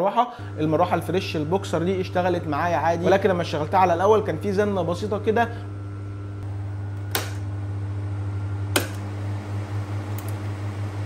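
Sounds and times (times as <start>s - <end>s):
fan running with buzz: 0.0s - 11.0s
switch clicks: 7.0s - 7.5s, 8.7s - 9.1s.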